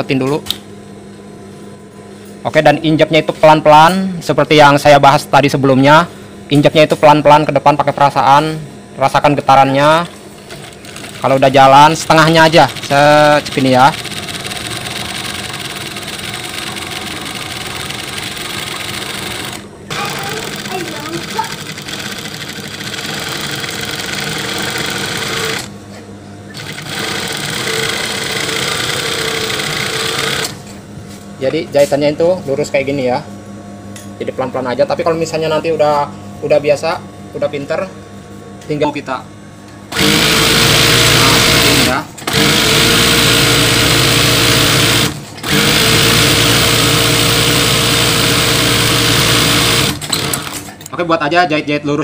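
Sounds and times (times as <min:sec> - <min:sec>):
sewing machine stitching: 0:10.5 - 0:25.7, 0:26.6 - 0:30.6, 0:39.9 - 0:50.7.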